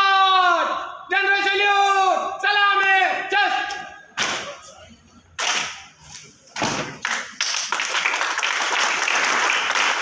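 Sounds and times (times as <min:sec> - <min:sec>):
crowd applause: 0:07.0 - 0:10.0.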